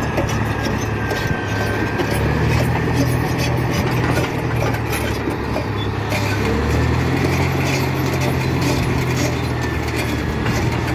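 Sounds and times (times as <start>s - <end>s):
bulldozer diesel engine droning: 0.0s - 10.9s.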